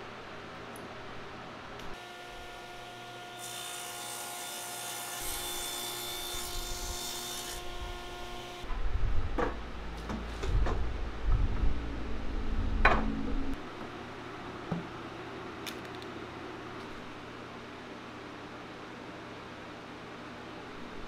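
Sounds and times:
table saw cutting wood: 0:02.0 - 0:08.7.

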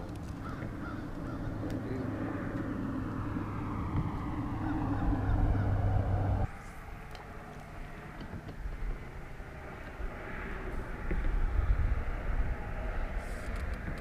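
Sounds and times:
low engine hum: 0:00.0 - 0:14.0
low rumble: 0:01.0 - 0:06.5.

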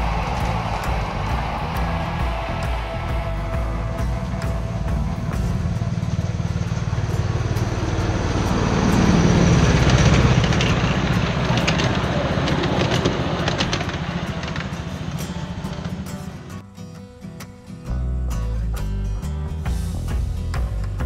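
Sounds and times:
miniature train rumbling past: 0:00.0 - 0:16.6
wheels clicking on track: 0:00.0 - 0:16.6.

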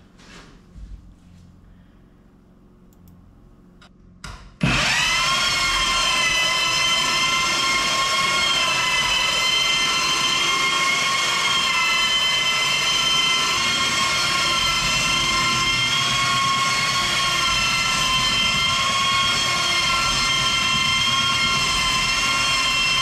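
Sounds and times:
belt sander whining: 0:04.6 - 0:23.0.

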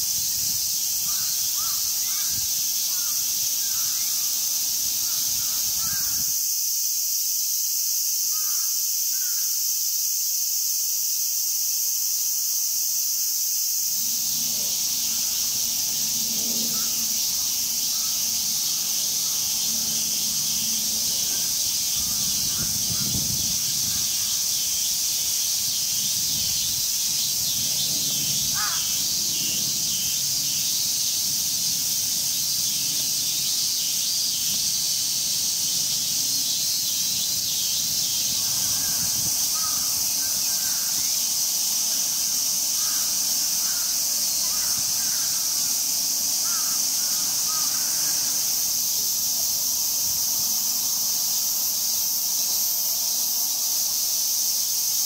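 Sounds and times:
cicadas buzzing: 0:00.0 - 0:55.0
crow cawing: 0:01.0 - 0:04.2, 0:05.0 - 0:06.3, 0:08.3 - 0:09.4, 0:16.6 - 0:19.5, 0:21.1 - 0:24.4, 0:28.5 - 0:29.0, 0:38.6 - 0:41.2, 0:42.8 - 0:45.7, 0:46.4 - 0:48.4.

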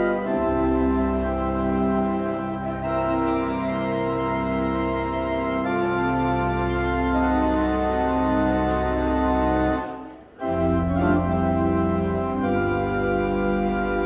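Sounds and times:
church organ chords: 0:00.0 - 0:14.0.

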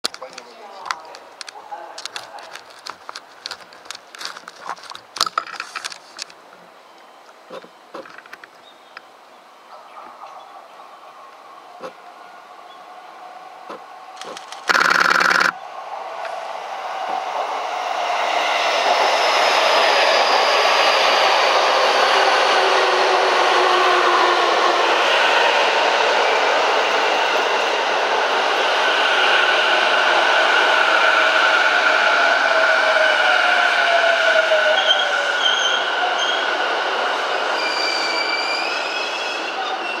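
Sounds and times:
train wheel squeals: 0:32.9 - 0:36.5, 0:37.3 - 0:40.0.

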